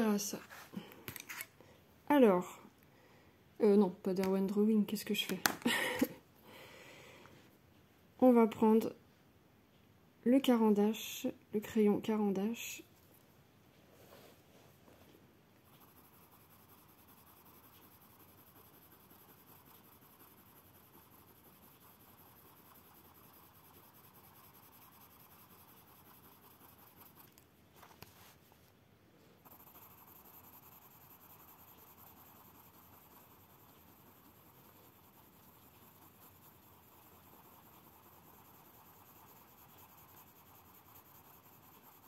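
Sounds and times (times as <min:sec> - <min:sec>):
pencil blender scratching paper: 0:15.6 - 0:28.5, 0:29.4 - 0:42.0.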